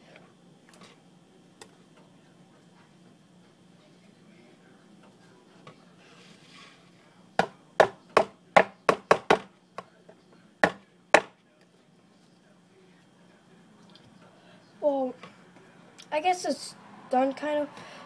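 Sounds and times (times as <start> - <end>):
knocks on hard tabletop: 7.4 - 9.5, 10.6 - 11.3.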